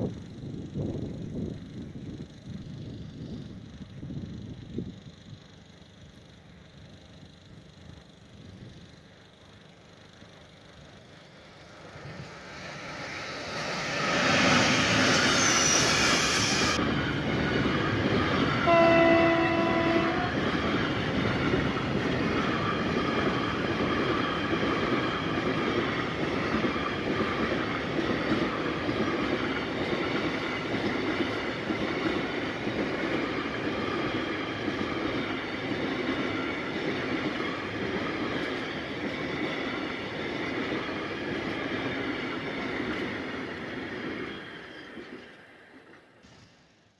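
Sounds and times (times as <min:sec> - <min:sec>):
locomotive passing: 0:10.0 - 0:46.2
wheels clattering on rails: 0:11.2 - 0:46.6
train horn: 0:18.6 - 0:20.6.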